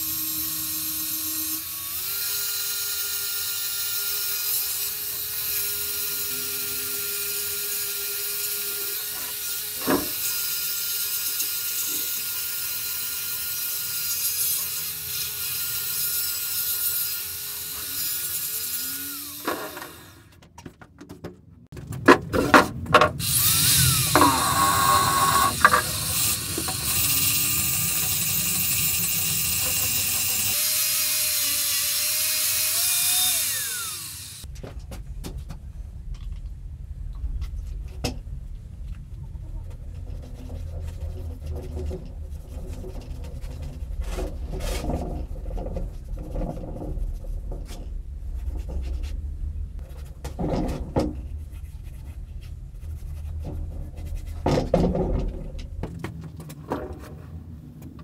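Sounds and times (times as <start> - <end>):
angle grinder whining: 0.0 - 20.4, 23.2 - 34.5
metal knocks and clatters: 49.8 - 51.4.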